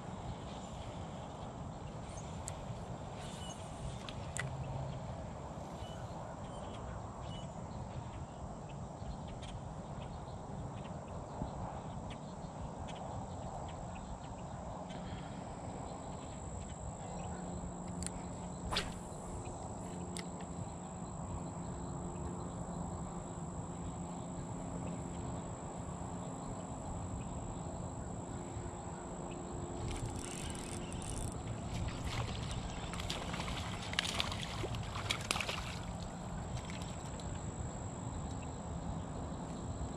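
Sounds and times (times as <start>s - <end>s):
faint hum: 0.0s - 39.9s
fish splashing at water surface: 31.8s - 36.0s.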